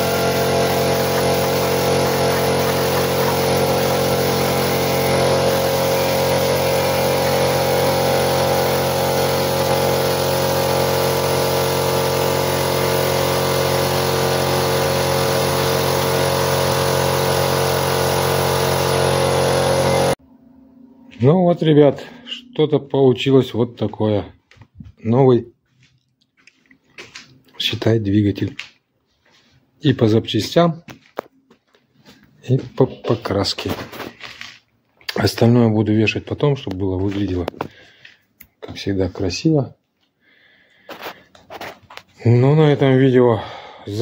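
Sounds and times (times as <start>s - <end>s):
spray gun hissing: 0.0s - 20.2s
air compressor humming: 0.0s - 22.5s.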